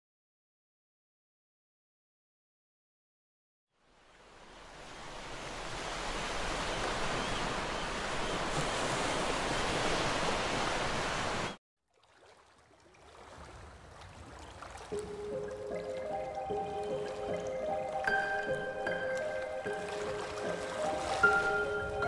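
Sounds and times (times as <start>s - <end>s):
music notes: 15.0s - 22.0s.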